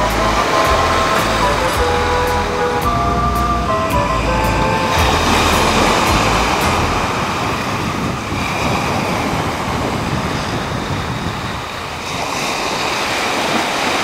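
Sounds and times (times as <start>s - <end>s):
wind: 0.0s - 14.0s
waves washing up a shore: 4.8s - 14.0s.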